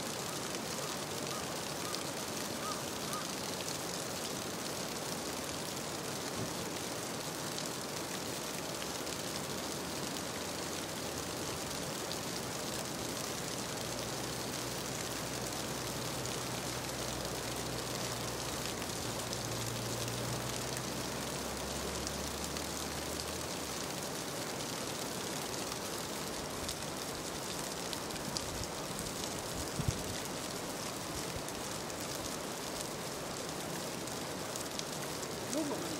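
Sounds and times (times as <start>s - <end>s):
stream running over rocks: 0.0s - 35.9s.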